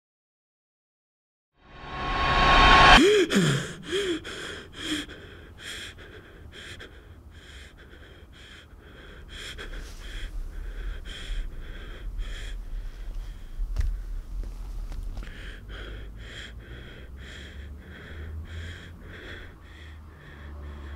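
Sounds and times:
person breathing heavily: 2.4 - 20.9
person groaning or gasping: 2.8 - 12.7.

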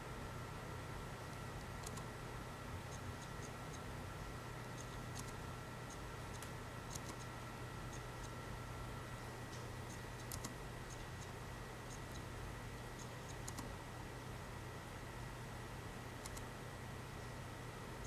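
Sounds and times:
low electrical hum: 0.0 - 18.0
light clicks: 16.2 - 16.5.

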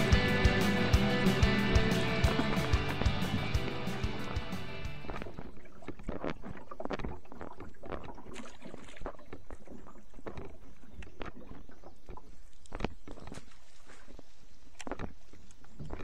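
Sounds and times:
low rumble: 0.0 - 5.3
water splashing against boat hull: 1.9 - 16.0.

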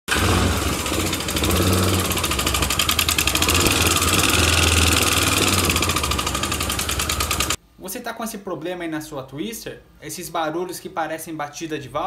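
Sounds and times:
fast ticking: 0.1 - 7.6
motorcycle engine idling: 0.1 - 7.6.

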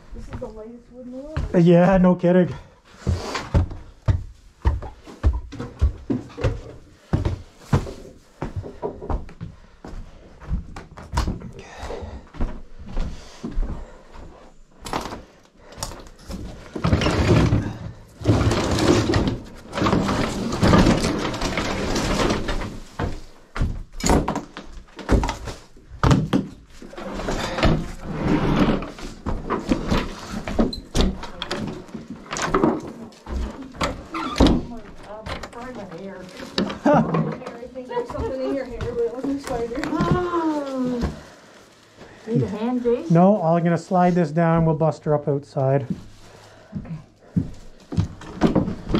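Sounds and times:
scraping and rummaging: 14.8 - 43.2, 47.2 - 48.9.

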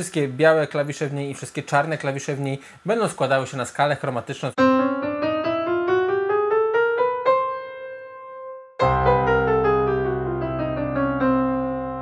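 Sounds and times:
piano keyboard playing scale: 4.6 - 12.0.

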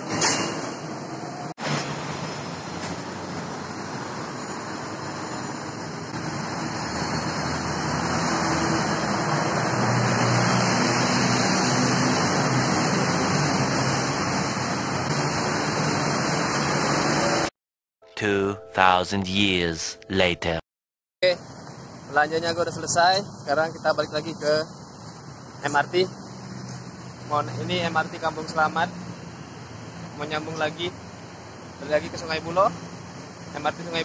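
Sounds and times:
road traffic rush: 0.0 - 17.5, 21.4 - 33.9.

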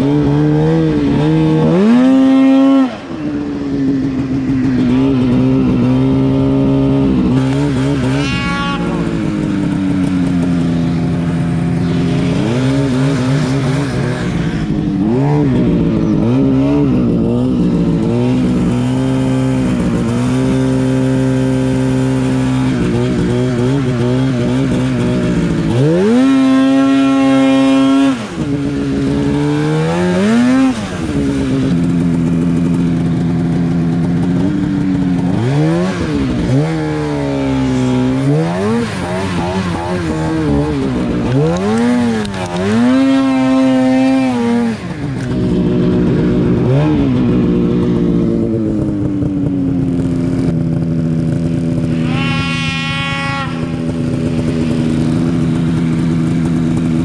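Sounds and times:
snowmobile engine revving: 0.0 - 57.0
second higher engine note: 7.0 - 10.4, 51.8 - 55.4.

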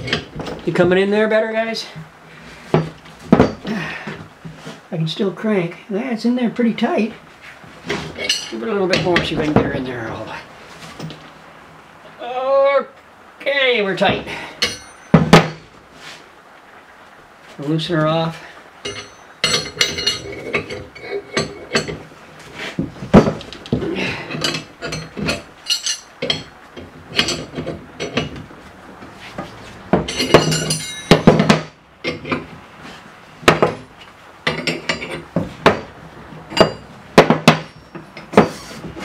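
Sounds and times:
steel wrenches clanking on metal: 0.0 - 0.8, 7.9 - 10.3, 14.6 - 15.6, 18.8 - 22.1, 23.2 - 28.4, 30.0 - 32.5, 33.6 - 35.9, 36.5 - 38.7.

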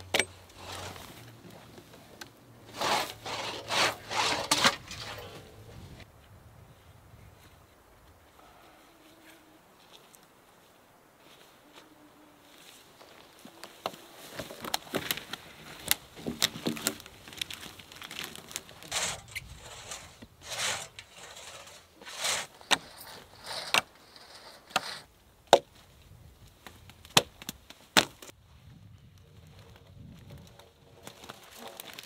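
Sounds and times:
wood scraping: 0.0 - 6.0, 13.0 - 25.1
wood knocking and cracking: 13.8 - 18.8.

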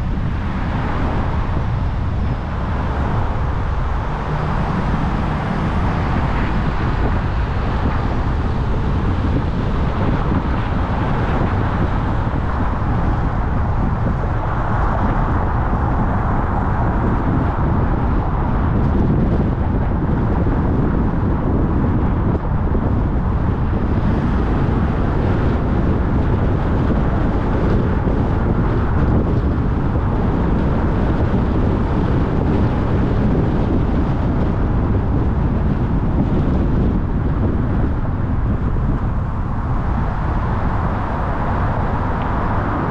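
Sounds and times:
car engine: 0.0 - 19.7, 35.7 - 42.9
tyre and road noise: 0.0 - 42.9.

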